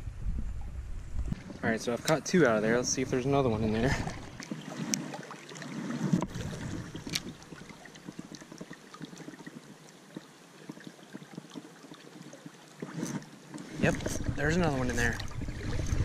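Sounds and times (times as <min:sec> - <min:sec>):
wind on microphone: 0:00.0 - 0:01.6, 0:13.8 - 0:16.0
stream rushing: 0:12.7 - 0:16.0.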